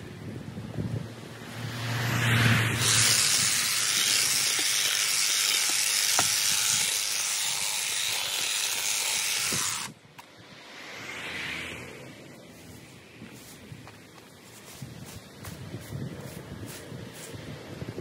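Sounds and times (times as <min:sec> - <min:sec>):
hedge trimmer cutting foliage: 0:02.8 - 0:10.3.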